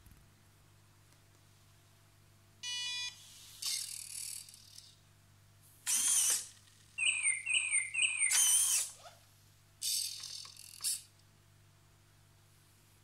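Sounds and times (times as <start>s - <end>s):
electronic buzzer beep: 2.6s - 3.2s
small motor whirring: 3.4s - 4.9s, 5.9s - 6.6s, 8.3s - 9.1s
chirping cuckoo tones: 7.0s - 8.7s.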